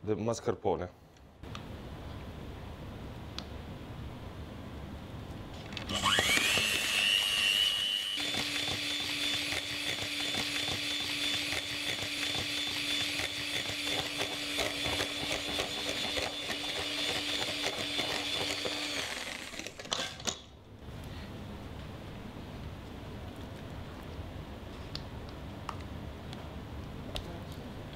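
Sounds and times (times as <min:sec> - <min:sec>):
electric hand mixer whining: 0:05.9 - 0:19.8.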